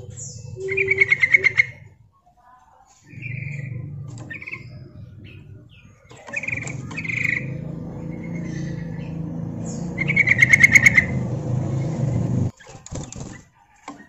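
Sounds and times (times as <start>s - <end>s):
bulbul chirping: 0.0s - 2.1s, 3.1s - 12.5s
low rumble: 0.0s - 2.2s, 3.1s - 12.5s.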